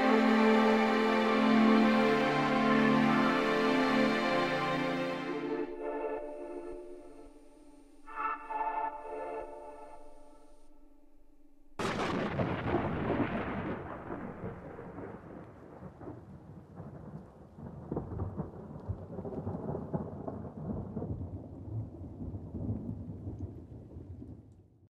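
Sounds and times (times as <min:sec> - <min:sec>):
rain: 0:00.0 - 0:05.6, 0:11.8 - 0:24.8
thunder rumbling: 0:11.8 - 0:24.6.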